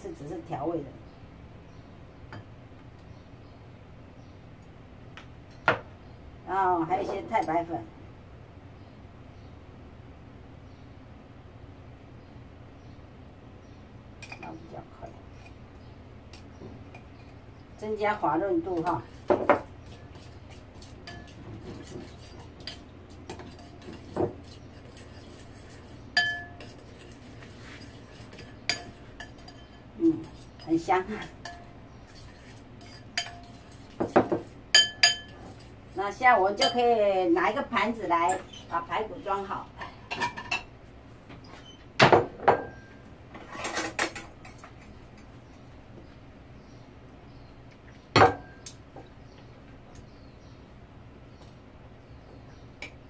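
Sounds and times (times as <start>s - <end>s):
spoon scraping and clinking in bowl: 19.5s - 35.8s
ceramic dishes knocking and clinking: 26.2s - 26.6s, 34.0s - 35.4s, 48.2s - 48.6s.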